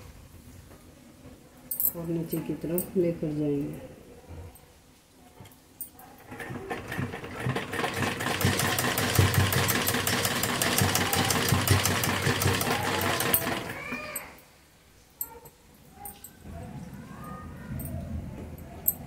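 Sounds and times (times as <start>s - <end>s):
sewing machine stitching: 6.2s - 13.8s.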